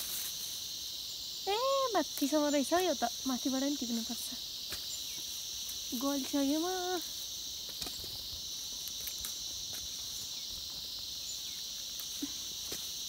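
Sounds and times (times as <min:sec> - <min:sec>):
high-pitched insect chorus: 0:00.0 - 0:13.0
leaves rustling: 0:00.0 - 0:13.0.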